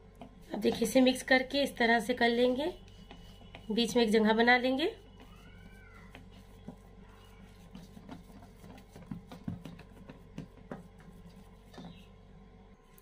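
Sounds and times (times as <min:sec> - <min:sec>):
hand patting minced meat: 0:00.0 - 0:01.2, 0:02.7 - 0:12.2
steady low hum: 0:06.2 - 0:13.0.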